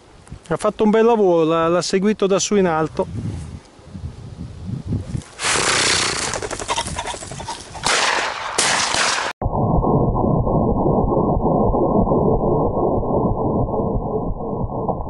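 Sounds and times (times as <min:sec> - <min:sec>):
bird wings flapping in grass: 0:05.1 - 0:07.9.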